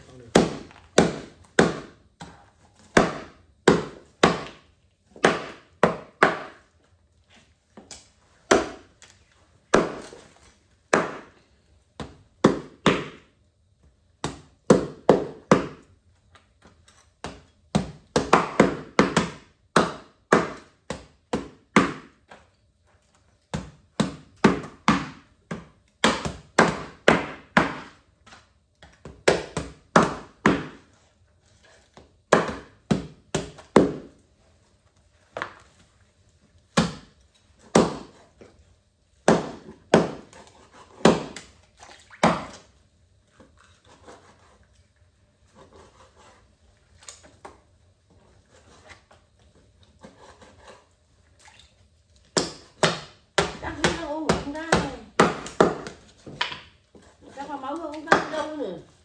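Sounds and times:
knife chopping on cutting board: 52.4s - 57.4s.

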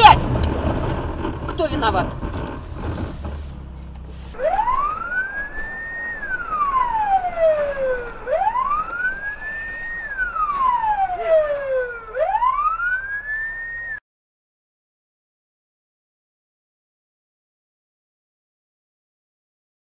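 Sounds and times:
emergency siren wailing: 0.0s - 14.0s.

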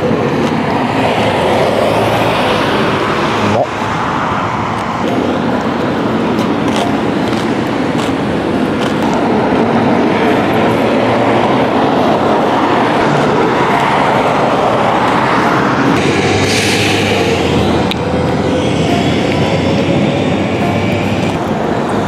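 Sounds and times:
road traffic rushing past: 0.0s - 22.0s.

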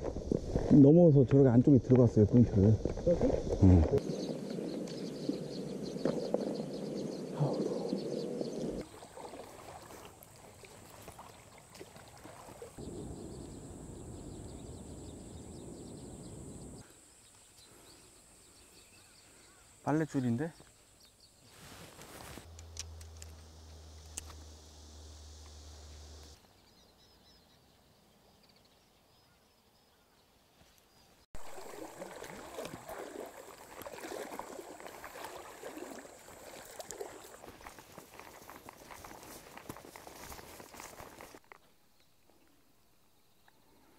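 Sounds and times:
splashing shallow water: 8.5s - 12.8s, 31.4s - 41.4s
grass swishing against clothing: 21.4s - 22.5s
footsteps: 36.8s - 41.5s.

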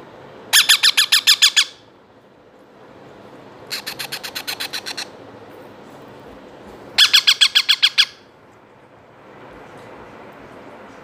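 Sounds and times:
parrot chicks squawking: 0.6s - 1.8s, 3.7s - 5.2s, 7.0s - 8.3s.

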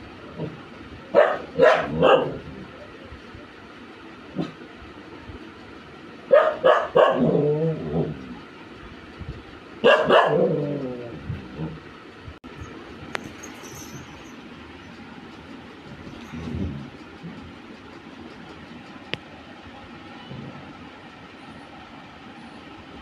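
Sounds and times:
dog barking: 1.1s - 2.4s, 6.3s - 7.4s, 9.8s - 10.6s.

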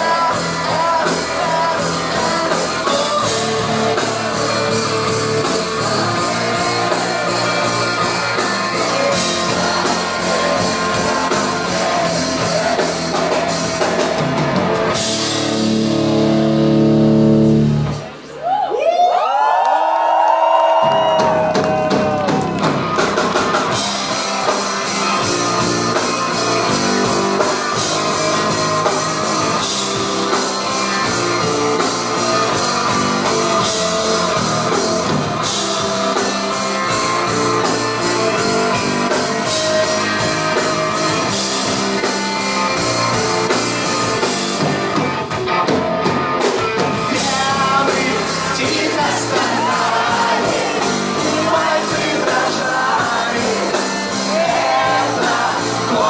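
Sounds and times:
person singing: 0.0s - 14.5s, 24.5s - 43.5s, 47.0s - 56.0s
live rock band playing: 0.0s - 18.3s, 20.8s - 56.0s.

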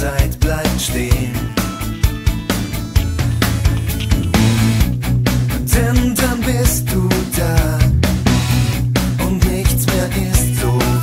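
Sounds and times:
bass guitar: 0.0s - 11.0s
electric guitar: 0.7s - 11.0s
steady drum beat: 0.8s - 10.3s.

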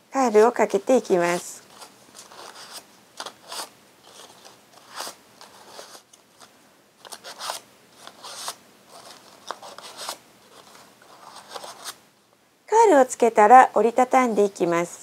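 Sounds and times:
paper rustling and scraping: 1.2s - 12.0s.

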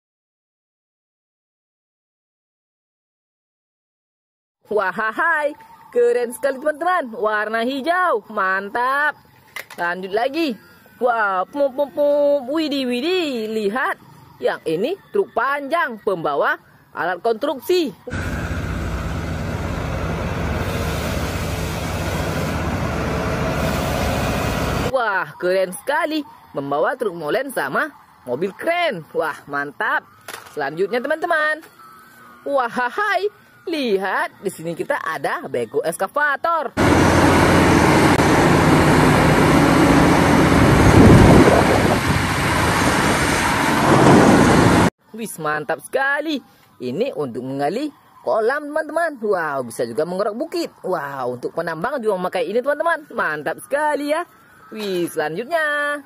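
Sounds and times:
diesel truck engine running: 18.1s - 24.9s, 36.8s - 44.9s
rock and machinery rumble: 18.1s - 24.9s, 36.8s - 44.9s.

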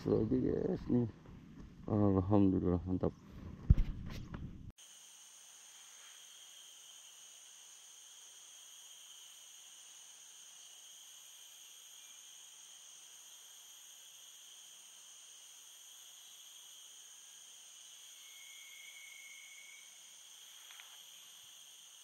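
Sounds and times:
insects chorus: 0.0s - 1.1s, 4.8s - 22.0s.

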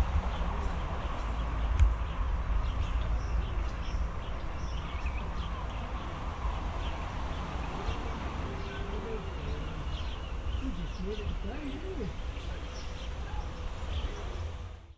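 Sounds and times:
birds chirping: 0.0s - 14.9s
distant train rumbling: 0.0s - 14.9s.

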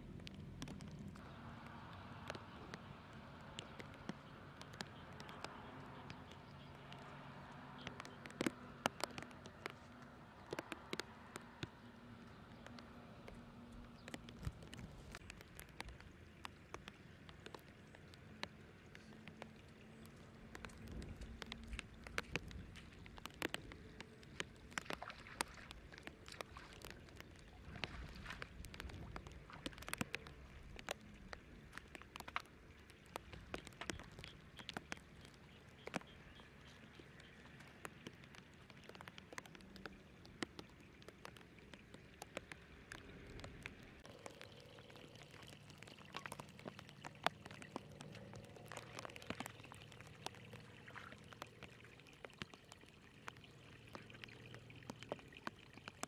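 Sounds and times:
water drops pattering in grass: 0.0s - 56.0s.

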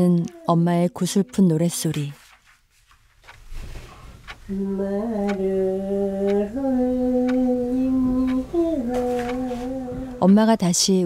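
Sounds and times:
elderly woman singing: 0.0s - 2.2s, 4.5s - 11.0s.

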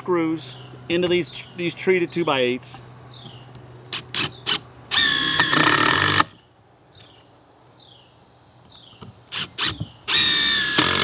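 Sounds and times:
impact driver driving screw: 4.2s - 6.4s, 9.4s - 11.0s.

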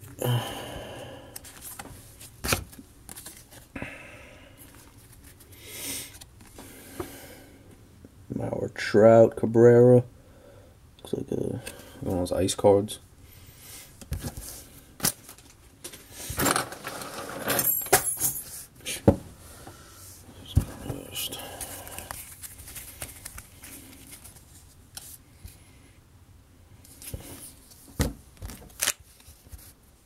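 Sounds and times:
cards rustling and scraping: 1.3s - 3.7s, 4.6s - 6.8s, 14.0s - 17.4s, 20.5s - 25.6s, 26.8s - 29.8s.

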